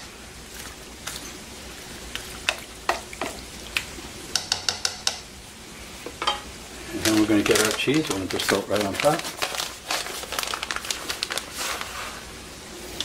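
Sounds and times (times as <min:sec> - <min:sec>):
spoon clicks and taps: 0:04.3 - 0:05.2.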